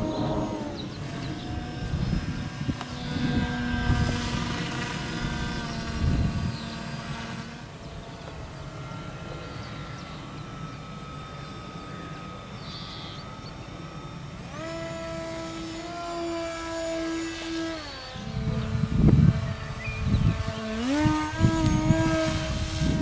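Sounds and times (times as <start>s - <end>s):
wind gusts on microphone: 0.0s - 7.5s, 18.2s - 23.0s
model airplane motor whining: 0.0s - 23.0s.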